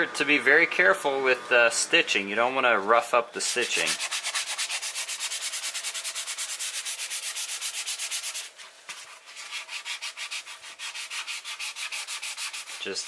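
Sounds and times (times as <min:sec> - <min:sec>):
sanding pad scratching leather: 0:03.4 - 0:13.0.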